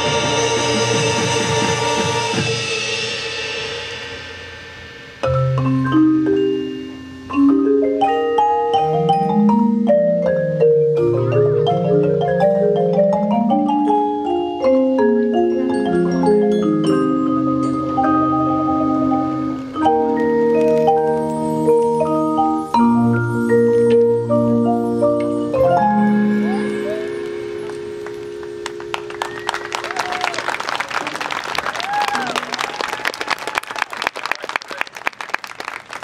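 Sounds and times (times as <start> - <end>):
marching band held chord: 0.0 - 4.4
marimbas playing melodic run: 5.2 - 30.8.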